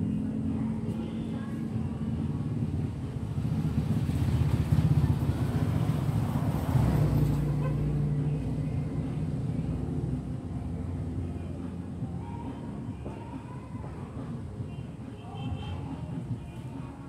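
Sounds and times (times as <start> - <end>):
vehicle engine running: 0.0 - 12.4.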